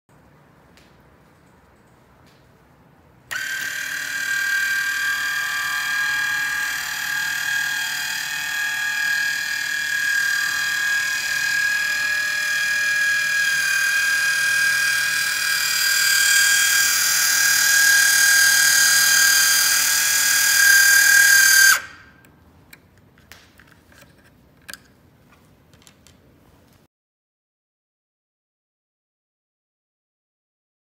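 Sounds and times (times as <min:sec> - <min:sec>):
small gear motor whining: 0:03.3 - 0:21.9.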